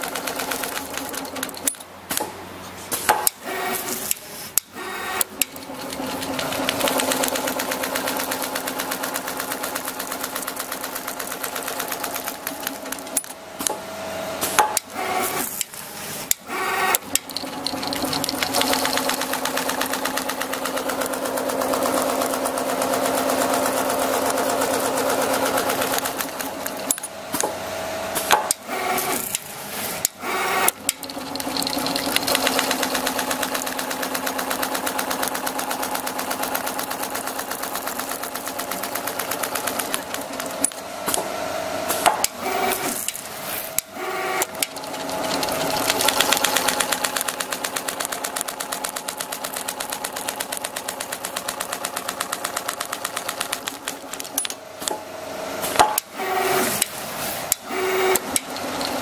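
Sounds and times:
sewing machine stitching: 0.0 - 1.8, 3.0 - 13.4, 14.4 - 54.5, 56.0 - 59.0
sharp clicks: 15.6 - 19.4, 43.1 - 54.6.

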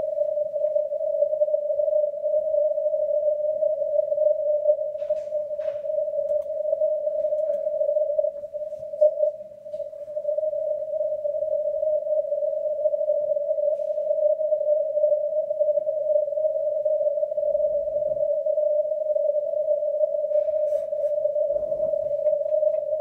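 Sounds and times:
faint low rumble: 0.0 - 23.0
radio band noise hiss: 20.3 - 23.0.

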